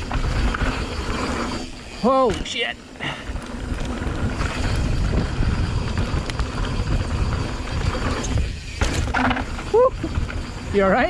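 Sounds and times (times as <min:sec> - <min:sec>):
bike tyres rolling on dirt: 0:00.0 - 0:11.0
wind on microphone: 0:03.3 - 0:10.9.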